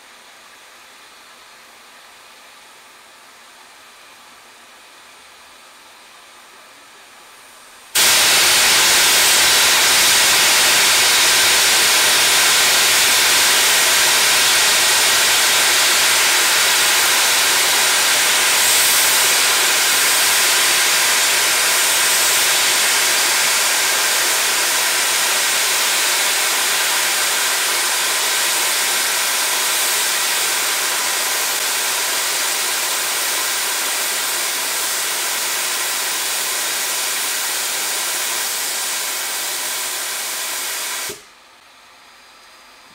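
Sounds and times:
steam locomotive blowing off steam: 8.0s - 41.3s.

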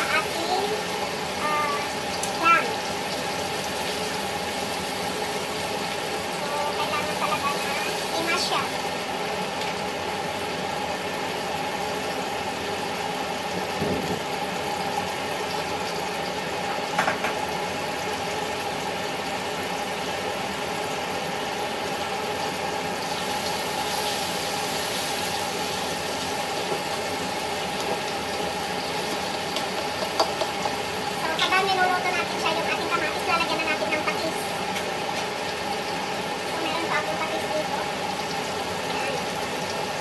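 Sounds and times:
mechanical hum and hiss: 0.0s - 40.0s
knock: 17.0s - 17.4s.

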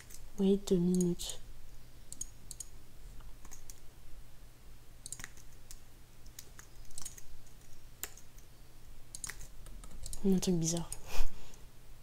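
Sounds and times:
faint low hum: 0.0s - 12.0s
mouse and keyboard clicks: 2.1s - 3.8s, 5.0s - 8.5s, 9.1s - 11.0s.

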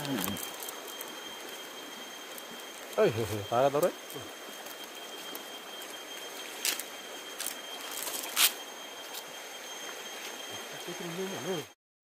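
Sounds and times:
faint high whine: 0.0s - 11.8s.

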